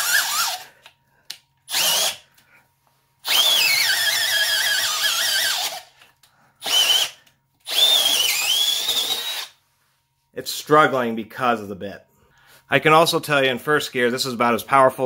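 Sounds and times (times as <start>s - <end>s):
cordless drill boring into wood: 0.0s - 0.7s, 1.7s - 2.2s, 3.2s - 5.9s, 6.6s - 9.5s.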